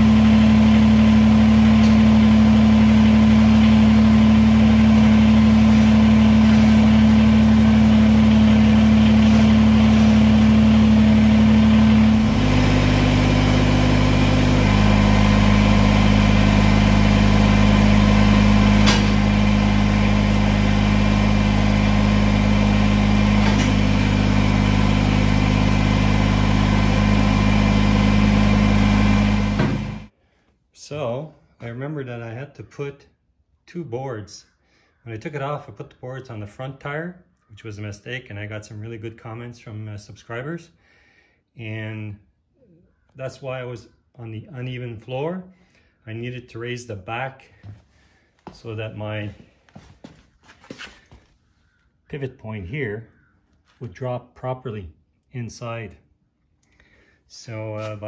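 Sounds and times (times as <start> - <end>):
tractor diesel engine running: 0.0 - 30.2.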